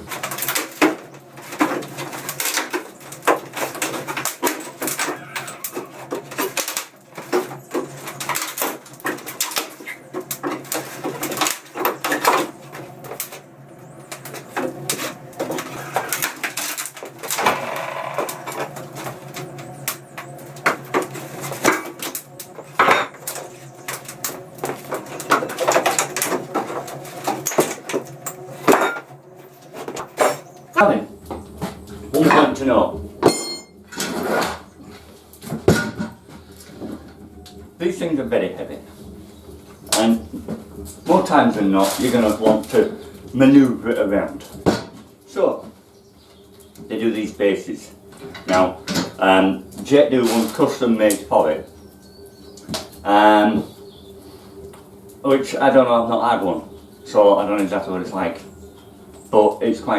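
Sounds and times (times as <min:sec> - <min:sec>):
wood squeaking: 0:00.0 - 0:54.2
wooden crate knocking and clattering: 0:35.5 - 0:36.3.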